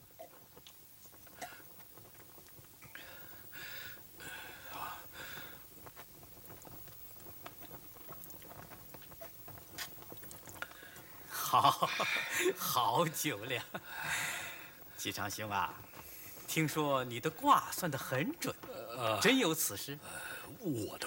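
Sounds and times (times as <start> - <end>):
person swallowing drink: 7.4 - 10.8
man's voice: 11.6 - 13.8, 16.5 - 21.0.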